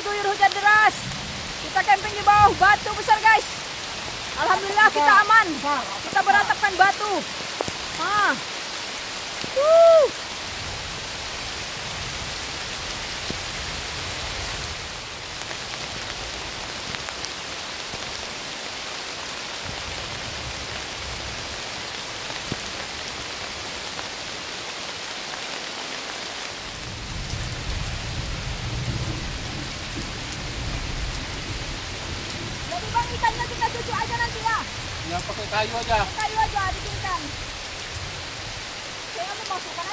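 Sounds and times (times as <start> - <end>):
heavy rain falling: 0.0 - 39.9
low thunder rumble: 0.9 - 4.4, 26.7 - 38.7.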